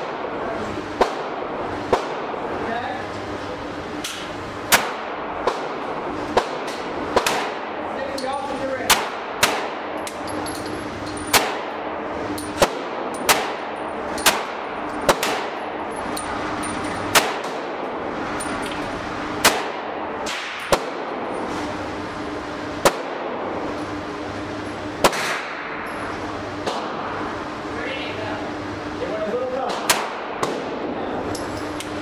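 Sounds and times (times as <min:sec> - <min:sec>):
steady low hum: 0:00.0 - 0:32.0
handgun shots echoing: 0:12.6 - 0:15.6, 0:25.0 - 0:25.7.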